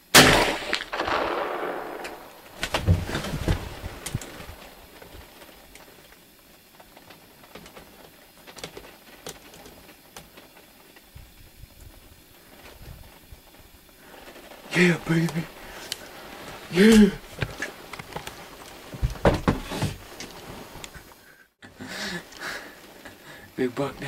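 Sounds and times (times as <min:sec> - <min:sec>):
gunshot echo: 0:00.1 - 0:03.3
faint clicks: 0:04.0 - 0:18.8.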